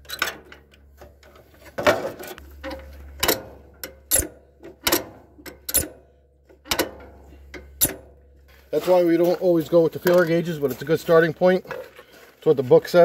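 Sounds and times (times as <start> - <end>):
wrenches clanking on metal: 0.0 - 8.2.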